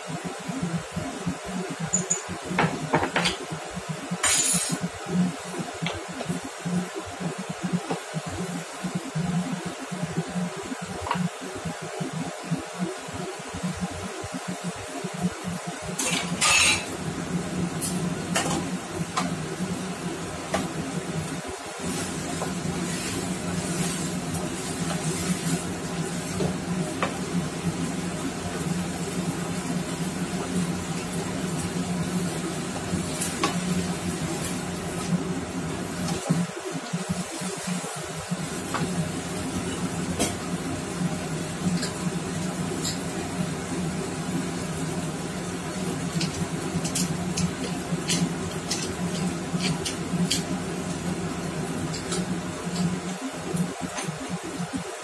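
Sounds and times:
cabbage sizzling in a frying pan: 16.2 - 53.8.

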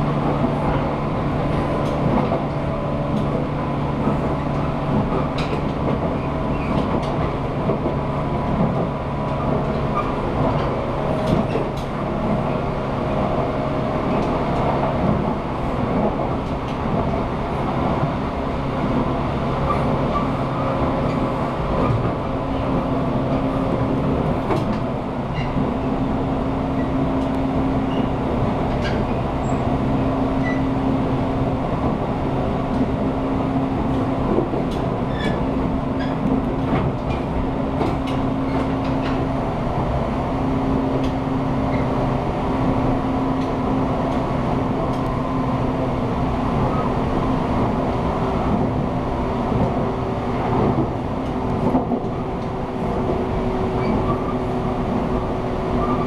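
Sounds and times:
train running noise: 0.0 - 56.0
wheels clicking over rail joints: 0.3 - 12.7, 18.9 - 30.8, 31.8 - 42.2.

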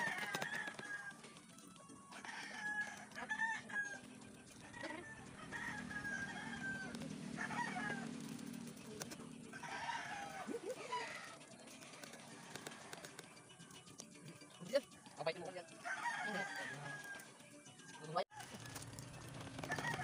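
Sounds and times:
rooster crowing: 0.0 - 1.3, 2.1 - 8.4, 9.5 - 11.4, 15.7 - 17.4, 19.6 - 20.0.

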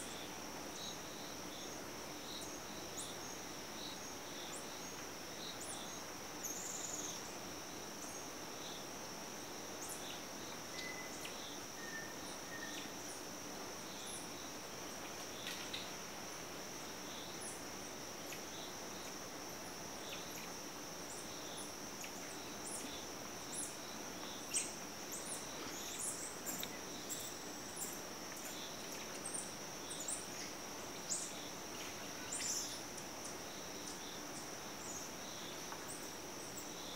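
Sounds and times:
insects droning: 0.0 - 36.9.

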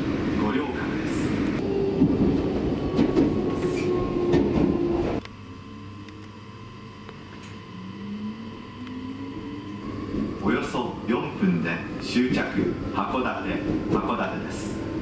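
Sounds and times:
train rumble: 0.0 - 6.1, 7.4 - 15.0
train running hum: 0.0 - 15.0
faint rising whine: 5.0 - 12.2.

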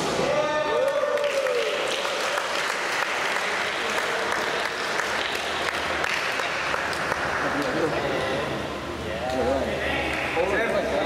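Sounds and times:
crowd clapping: 0.8 - 7.9.

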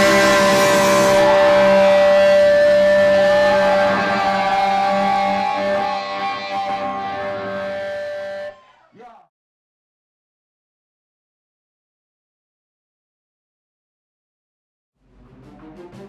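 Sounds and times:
electric guitar chord ringing: 0.0 - 8.5.

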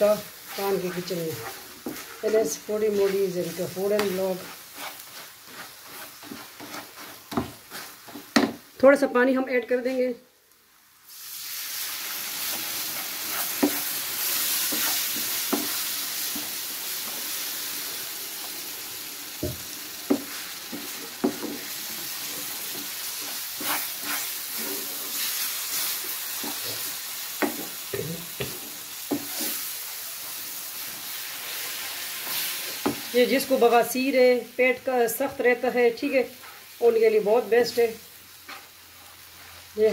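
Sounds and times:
water sizzling in hot pan: 0.0 - 8.8, 10.4 - 39.9
wooden spoon scraping pan: 0.1 - 8.5, 12.4 - 16.6, 20.1 - 29.7.

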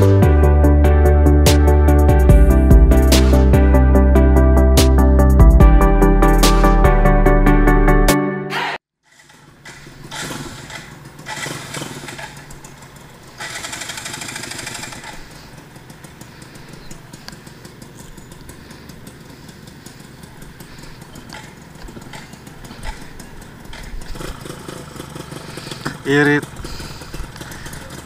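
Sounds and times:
two-stroke motorcycle engine: 8.5 - 28.0.

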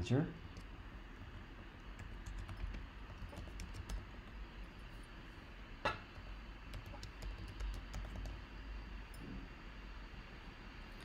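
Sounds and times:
low steady hum: 0.0 - 11.0
keyboard typing: 1.3 - 4.4, 6.7 - 8.4.

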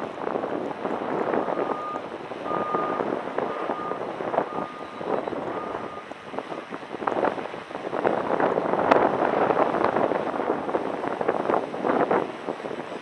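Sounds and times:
wind on microphone: 0.0 - 13.0
electronic beeps: 1.4 - 3.1, 3.7 - 6.1.

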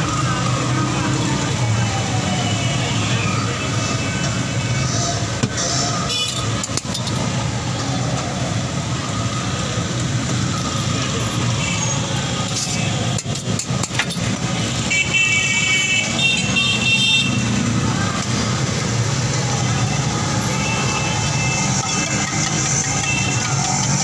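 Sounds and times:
street traffic: 0.0 - 24.0
vehicle horns honking: 6.1 - 6.5, 14.8 - 17.6.

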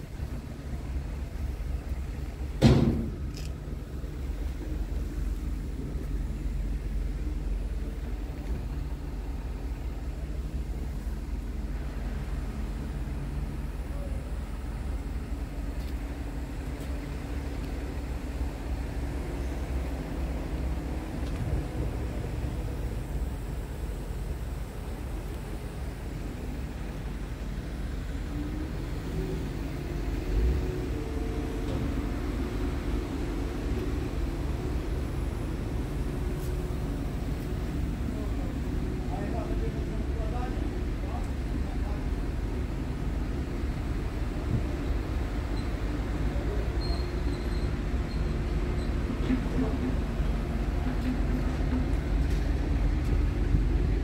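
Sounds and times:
diesel engine idling: 0.0 - 54.0
distant traffic: 0.0 - 54.0
brief bump: 2.6 - 3.3.

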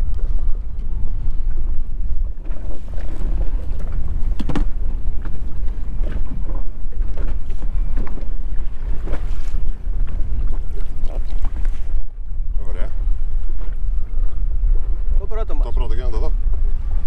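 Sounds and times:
water slapping boat hull: 0.0 - 17.0
wind buffeting microphone: 0.0 - 17.0.

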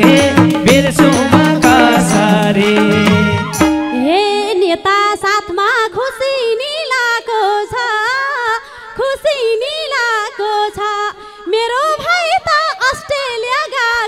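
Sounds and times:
woman singing solo: 3.5 - 14.0.

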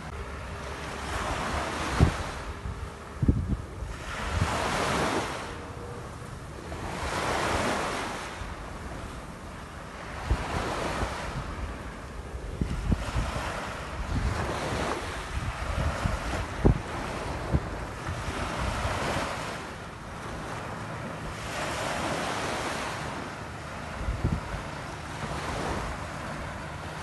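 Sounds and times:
sea waves breaking on shore: 0.0 - 27.0
wind buffeting microphone: 0.0 - 27.0.

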